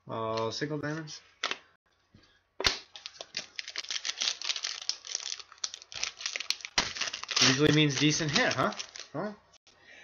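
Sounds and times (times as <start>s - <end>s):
foil wrapper crinkling and tearing: 2.9s - 9.2s.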